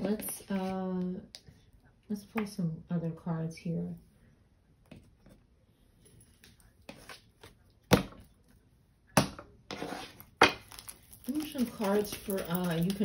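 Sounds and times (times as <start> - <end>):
cards rustling and clicking: 10.4 - 13.0.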